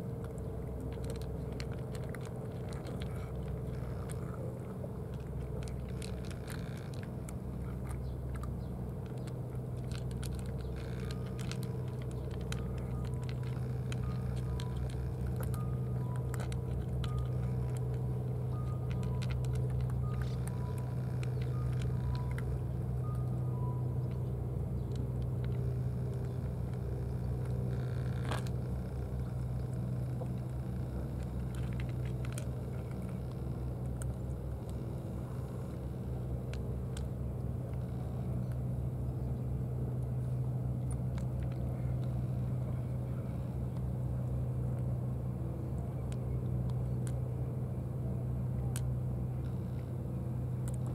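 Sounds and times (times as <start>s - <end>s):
low mechanical hum: 0.0s - 50.9s.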